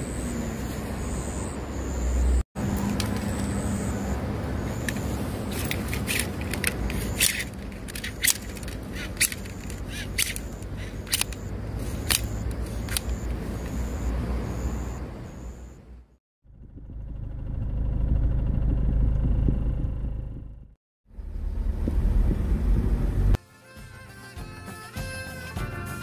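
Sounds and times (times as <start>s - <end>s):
steady low rumble: 16.5s - 23.4s.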